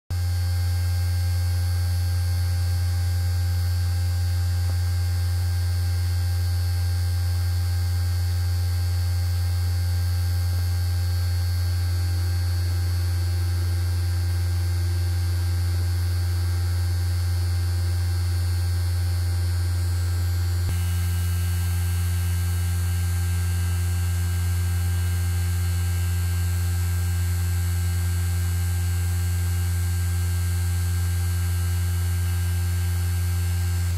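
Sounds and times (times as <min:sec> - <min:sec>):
low electrical hum: 0:00.1 - 0:33.9.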